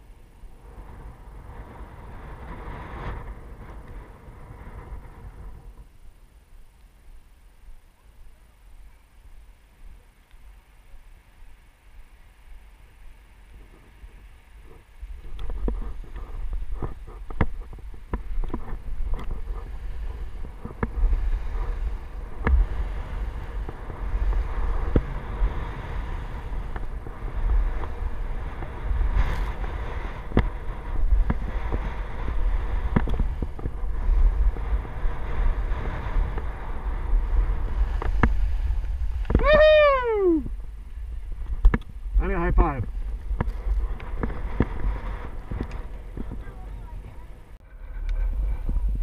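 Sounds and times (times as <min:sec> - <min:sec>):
wind on microphone: 0:00.0 - 0:06.2, 0:08.7 - 0:49.0
skis on snow: 0:00.0 - 0:07.9, 0:08.7 - 0:39.9, 0:40.5 - 0:49.0
scrapes and clicks: 0:13.6 - 0:22.6, 0:42.8 - 0:46.5, 0:47.6 - 0:49.0
person shouting: 0:39.4 - 0:40.5.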